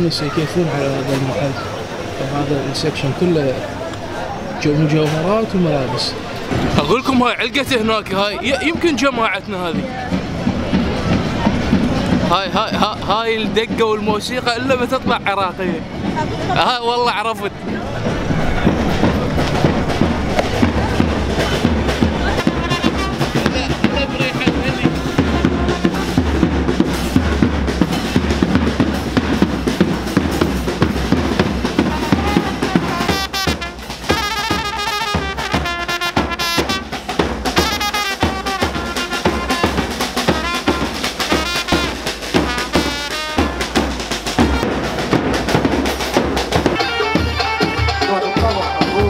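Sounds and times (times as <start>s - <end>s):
bass drum beating: 6.5s - 49.0s
trumpet melody: 18.3s - 29.1s, 31.3s - 45.4s, 46.6s - 49.0s.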